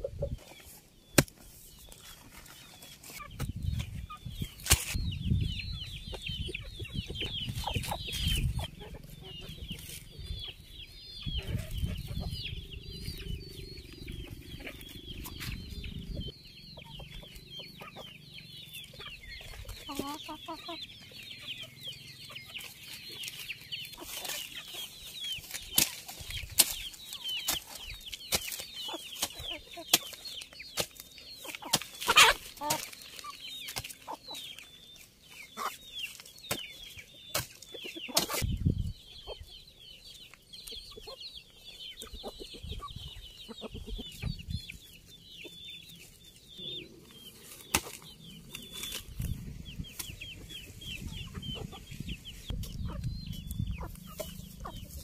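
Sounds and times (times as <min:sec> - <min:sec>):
hens clucking: 0:00.0 - 0:04.5, 0:05.6 - 0:55.0
hoe chopping soil: 0:01.1 - 0:02.0, 0:04.6 - 0:05.0, 0:25.4 - 0:34.2, 0:35.6 - 0:38.5, 0:47.5 - 0:49.1.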